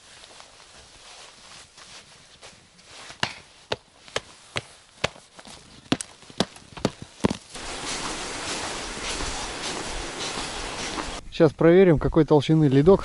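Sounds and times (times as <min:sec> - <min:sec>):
wind on microphone: 0:07.6 - 0:11.3.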